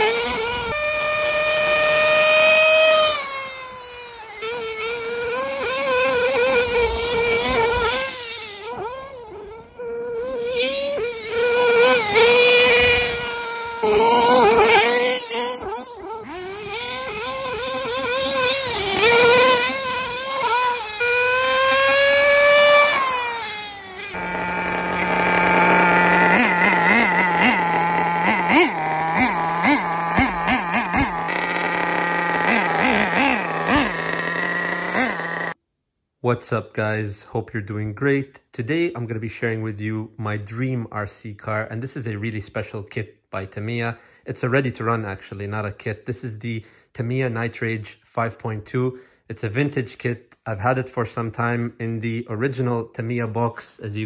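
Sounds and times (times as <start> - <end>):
nitro engine revving: 0.0 - 9.4, 10.3 - 35.6.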